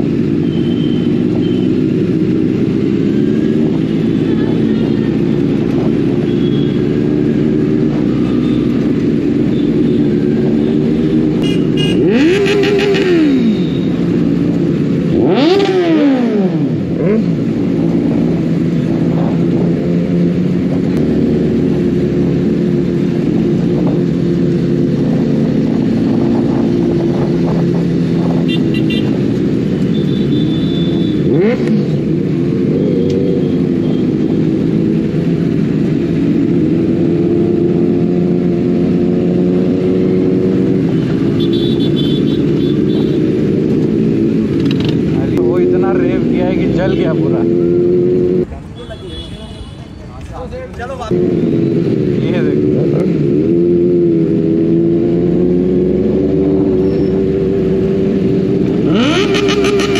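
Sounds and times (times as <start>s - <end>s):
motorcycle engines revving: 0.0s - 59.9s
motorcycle engines running: 0.0s - 59.9s.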